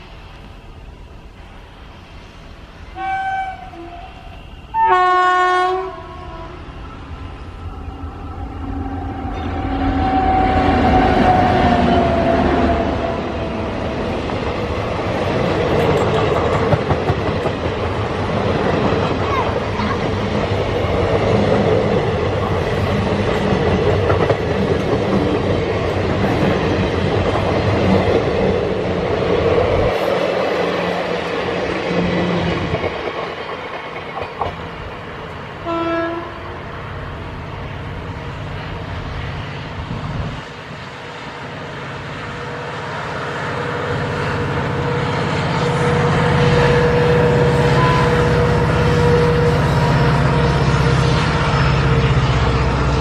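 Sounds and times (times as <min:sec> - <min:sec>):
train horn blast: 0:02.9 - 0:06.8, 0:07.9 - 0:13.4, 0:35.6 - 0:36.6, 0:44.3 - 0:53.0
train wheels clattering on rails: 0:13.4 - 0:35.5.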